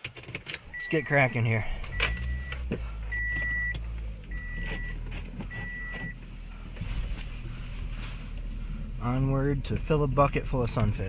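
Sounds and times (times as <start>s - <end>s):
car engine humming: 0.0s - 11.0s
car warning chime beeps: 0.7s - 6.2s.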